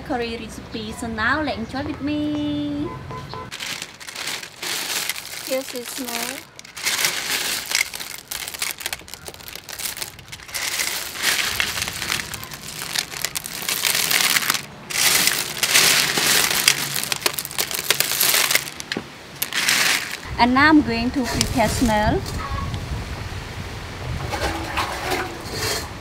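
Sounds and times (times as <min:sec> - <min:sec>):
shells clattering in metal bowl: 0:03.5 - 0:20.3.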